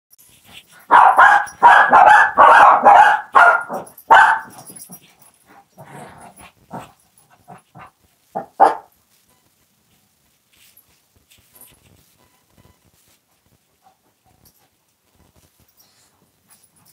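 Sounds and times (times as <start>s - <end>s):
dog barking: 0.8s - 4.9s, 7.5s - 8.9s.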